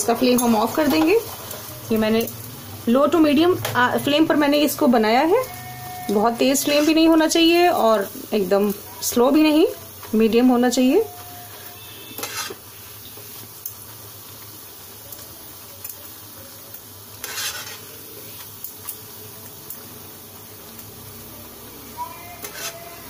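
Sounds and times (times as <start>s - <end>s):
metal utensils scraping pan: 0.0s - 2.3s, 5.4s - 7.2s, 10.7s - 12.6s, 17.2s - 17.9s, 22.2s - 23.0s
bread sizzling in oil: 0.0s - 23.0s.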